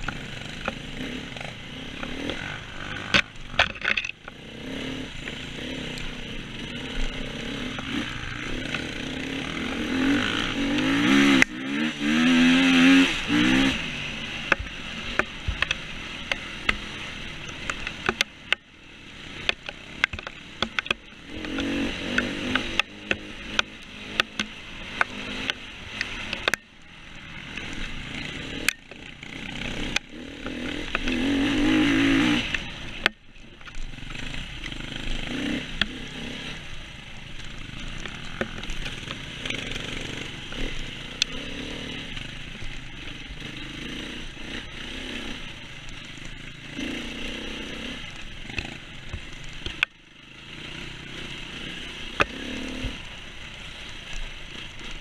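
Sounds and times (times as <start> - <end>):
motorcycle engine revving: 0.0 - 55.0
sharp clicks and knocks: 1.4 - 4.4, 14.4 - 18.7, 19.4 - 26.7, 48.5 - 50.0.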